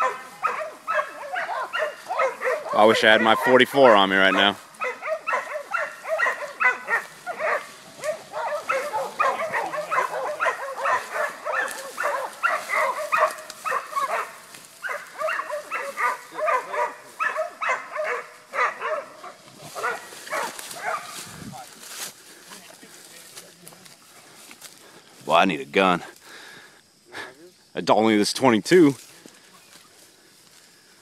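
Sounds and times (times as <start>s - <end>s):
dog barking: 0.0s - 21.3s.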